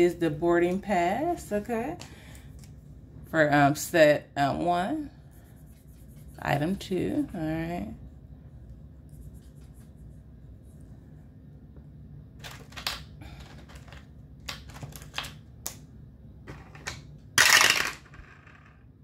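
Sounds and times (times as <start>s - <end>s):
dice clattering down tower: 16.5s - 18.8s.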